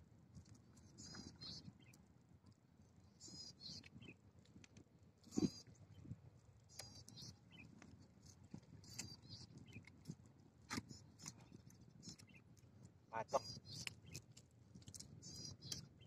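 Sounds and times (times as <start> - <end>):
small animal chirping: 0.9 - 2.0, 3.2 - 4.1, 5.3 - 5.7, 6.7 - 7.7, 8.8 - 9.9, 13.2 - 14.3, 14.9 - 16.0.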